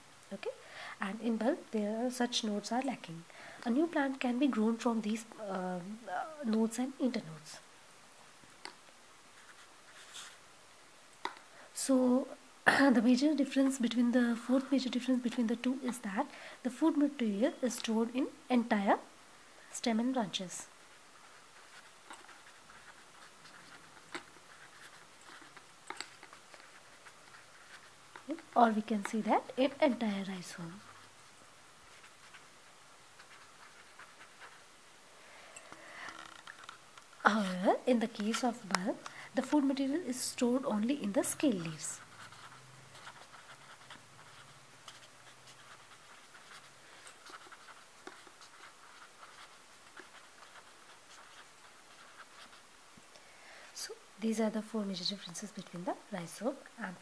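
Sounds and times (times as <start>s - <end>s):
pen scratching on paper: 21.1s - 31.2s, 31.9s - 34.6s, 37.3s - 52.7s.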